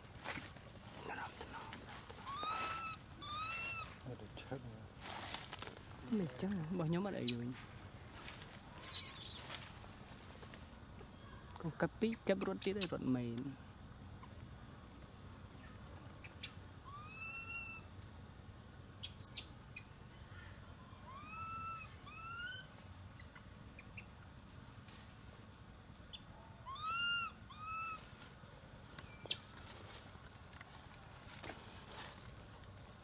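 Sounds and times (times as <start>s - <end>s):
young monkey coo calls: 1.1s - 4.0s, 7.2s - 7.4s, 8.8s - 9.5s, 16.8s - 18.0s, 20.9s - 23.4s, 26.4s - 28.1s.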